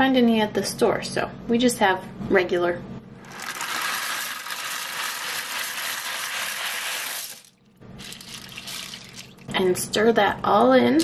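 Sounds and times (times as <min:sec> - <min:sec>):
dry pasta pouring rattling: 0:03.2 - 0:09.5.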